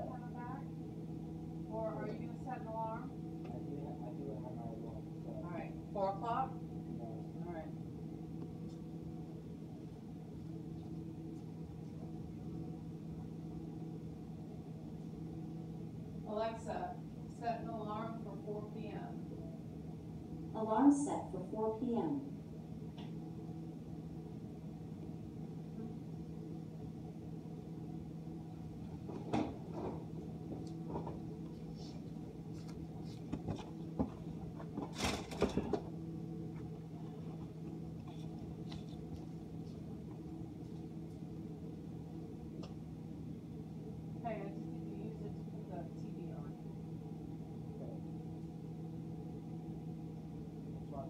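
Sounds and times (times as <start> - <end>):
dishwasher motor humming: 27.9 - 43.3
dishwasher humming: 33.3 - 36.1.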